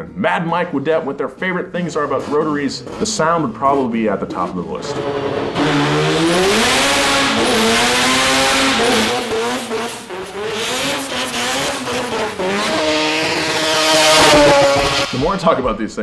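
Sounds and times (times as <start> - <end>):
engines revving hard: 4.8 - 15.6.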